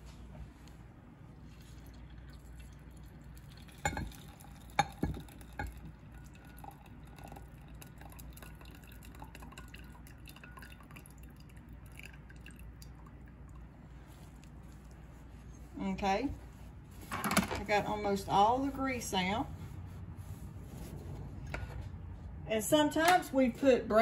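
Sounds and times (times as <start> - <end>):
grease trickling and dripping: 1.5 - 15.6.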